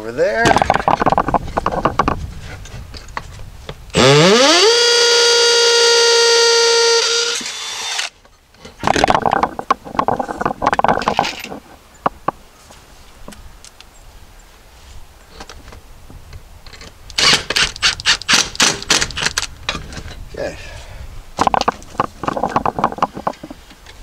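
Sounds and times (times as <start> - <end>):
clicks and rattles of parts: 0.4 - 3.4, 8.2 - 12.4, 16.6 - 20.2, 21.4 - 24.0
power drill whine: 4.0 - 8.1.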